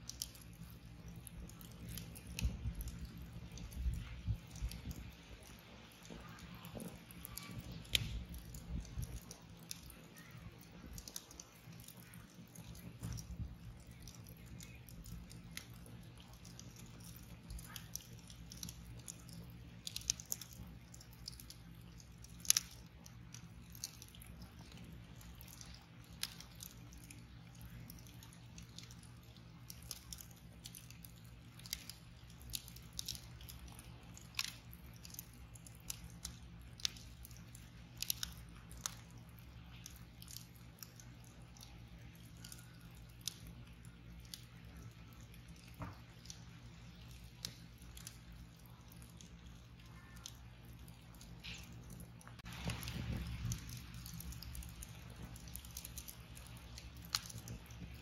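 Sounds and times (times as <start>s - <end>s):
wood fire crackling: 0.0s - 58.0s.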